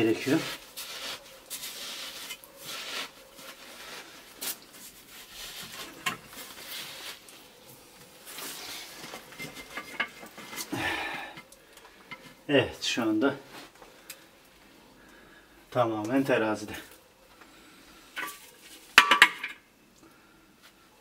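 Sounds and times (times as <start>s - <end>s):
hands scraping mortar: 0.2s - 7.3s.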